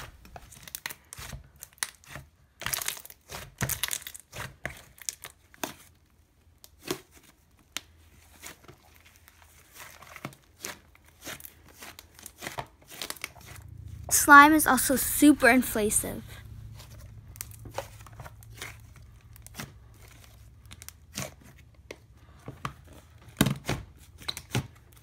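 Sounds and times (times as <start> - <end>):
slime squishing with sticky crackles: 0.5 - 5.9, 6.6 - 13.6, 17.4 - 22.0.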